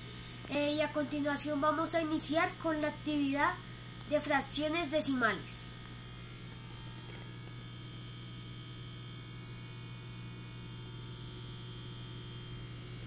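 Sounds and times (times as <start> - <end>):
faint high whine: 0.0 - 13.0
low electrical hum: 0.0 - 13.0.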